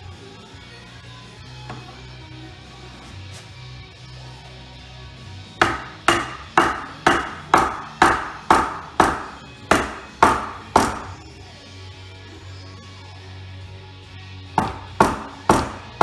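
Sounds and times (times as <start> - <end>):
strikes on wood: 5.6 - 11.2, 14.6 - 16.0.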